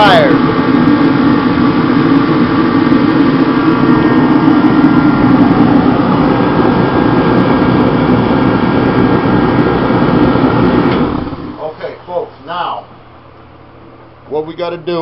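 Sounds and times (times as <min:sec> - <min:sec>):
forced-air heater roaring: 0:00.0 - 0:15.0.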